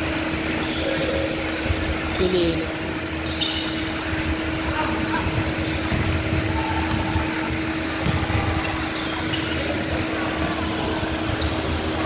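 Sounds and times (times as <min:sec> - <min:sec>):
sneaker squeaks: 0:00.0 - 0:12.0
steady hum: 0:00.0 - 0:12.0.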